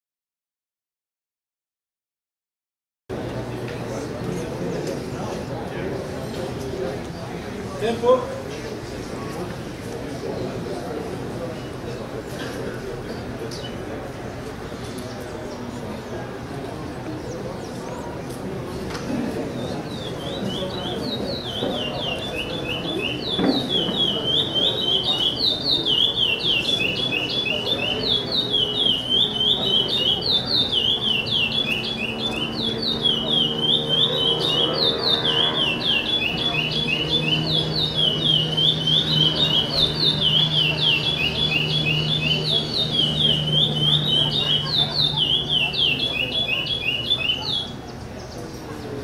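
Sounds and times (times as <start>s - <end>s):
blackbird singing whistled notes: 19.8s - 47.7s.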